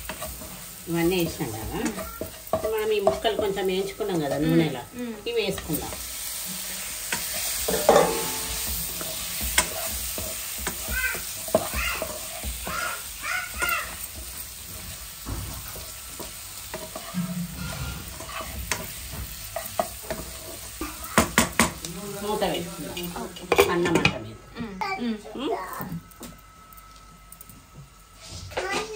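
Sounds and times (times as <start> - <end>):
spatula scraping pan: 0.0 - 24.2
food sizzling: 0.0 - 28.9.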